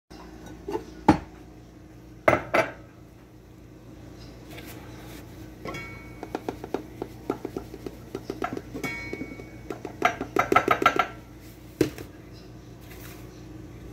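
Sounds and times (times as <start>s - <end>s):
ceramic mugs clinking: 5.6s - 11.2s.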